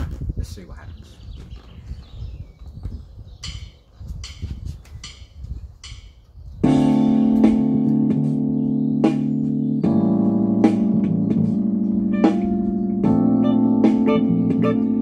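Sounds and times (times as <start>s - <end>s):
clean electric guitar chords: 6.7s - 15.0s.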